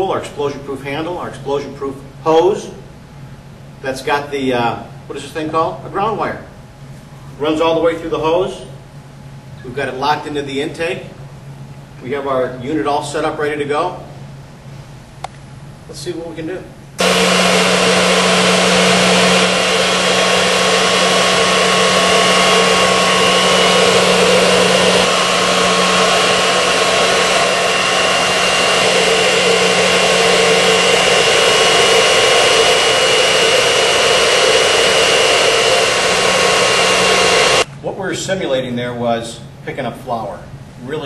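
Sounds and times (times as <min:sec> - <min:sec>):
industrial vacuum running: 0:15.9 - 0:37.7.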